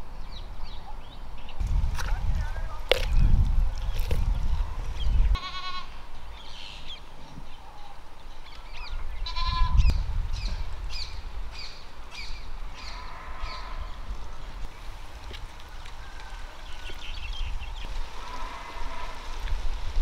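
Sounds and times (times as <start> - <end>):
goat bleating: 5.4 - 6.0, 9.2 - 9.8.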